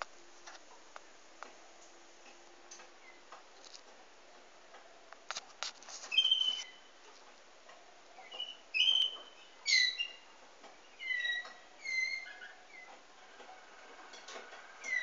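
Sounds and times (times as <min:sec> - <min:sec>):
canary singing: 0:03.0 - 0:03.3, 0:06.0 - 0:07.0, 0:08.2 - 0:13.1, 0:14.8 - 0:15.0.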